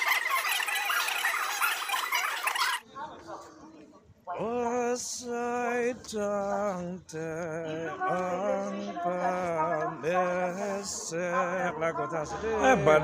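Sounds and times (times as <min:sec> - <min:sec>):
man singing slowly: 0:04.4 - 0:13.0.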